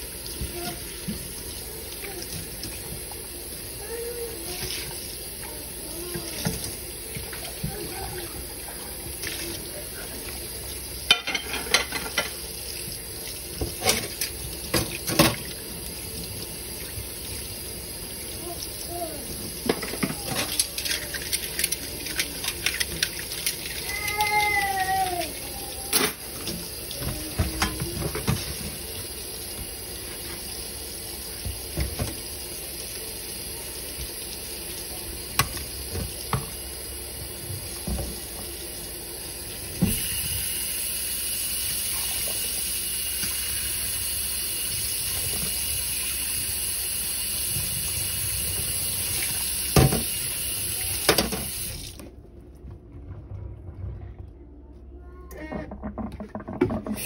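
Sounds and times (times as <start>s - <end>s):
tap running into steel sink: 35.4s - 36.6s.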